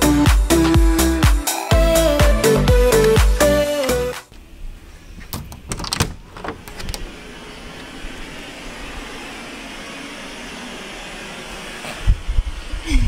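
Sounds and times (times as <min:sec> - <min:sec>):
door handle and latch clicking: 0:05.3 - 0:07.0.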